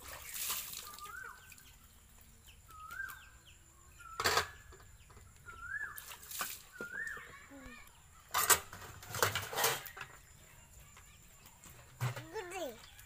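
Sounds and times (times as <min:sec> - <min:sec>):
water splashing: 0:00.0 - 0:01.8.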